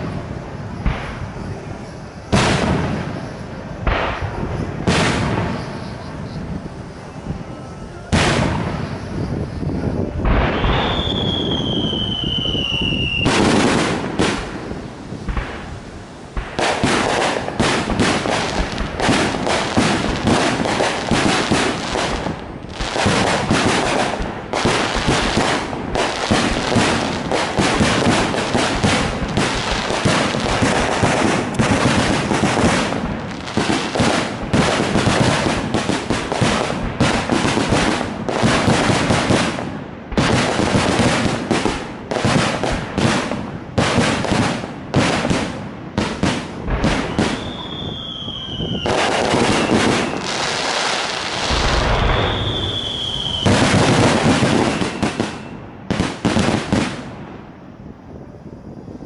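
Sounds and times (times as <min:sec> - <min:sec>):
firework shells bursting: 0:10.2 - 0:39.6, 0:40.2 - 0:57.2.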